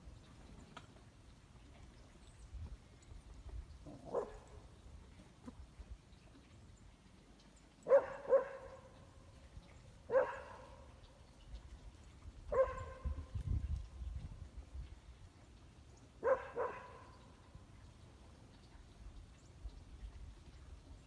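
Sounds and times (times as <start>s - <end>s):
dog barking: 4.0s - 4.5s, 7.9s - 8.9s, 10.1s - 10.8s, 12.5s - 13.1s, 16.2s - 17.2s.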